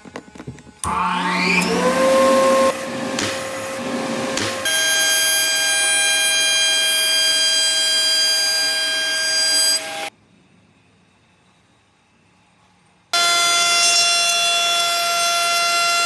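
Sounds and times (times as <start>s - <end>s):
dust collector motor hum: 0.8s - 7.3s
router high-pitched whine: 0.8s - 10.1s, 13.2s - 16.0s.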